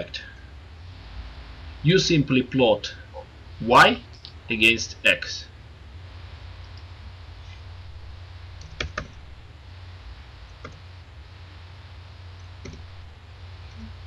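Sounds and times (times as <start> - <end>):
steady low hum: 0.0 - 14.0
computer keyboard keystrokes: 8.6 - 9.2.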